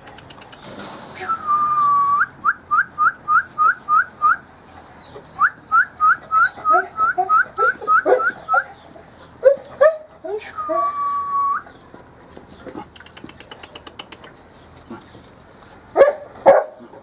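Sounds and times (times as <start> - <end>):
puppies whimpering: 4.5 - 12.1
person whistling: 10.6 - 11.6.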